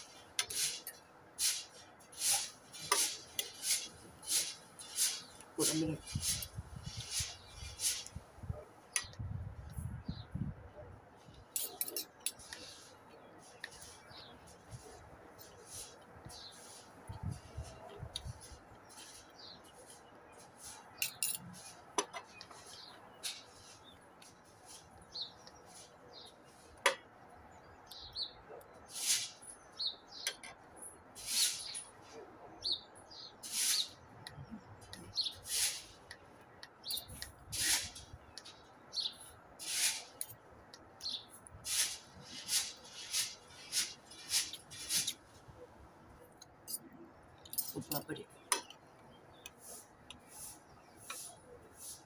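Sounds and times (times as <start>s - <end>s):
cutlery clinking on plates: 11.5s - 12.6s, 21.0s - 22.3s.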